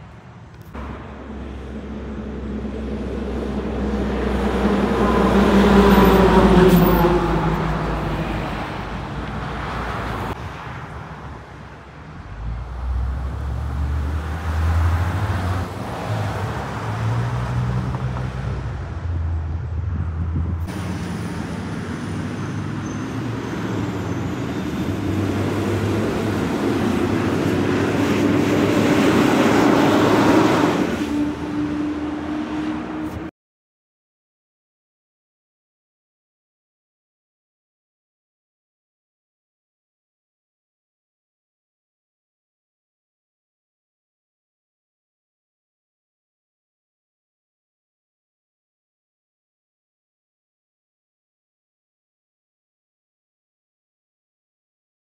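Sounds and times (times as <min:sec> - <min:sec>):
bus engine passing close: 0:00.0 - 0:33.3
truck engine driving past: 0:00.6 - 0:33.3
vehicle passing by: 0:00.8 - 0:33.3.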